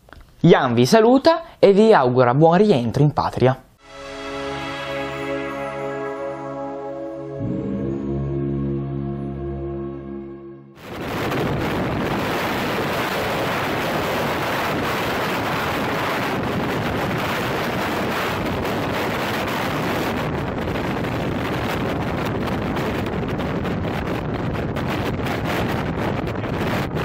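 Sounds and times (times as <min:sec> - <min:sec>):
music: 0:03.8 - 0:10.8
wind buffeting microphone: 0:10.8 - 0:27.0.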